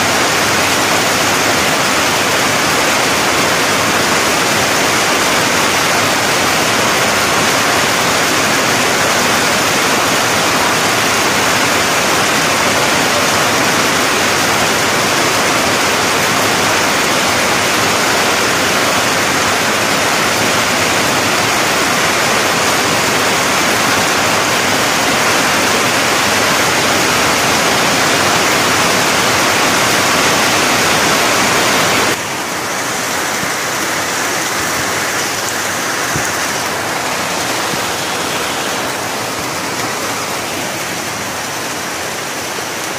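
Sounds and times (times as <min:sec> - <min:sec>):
heavy rain on foliage: 0:00.0 - 0:42.9.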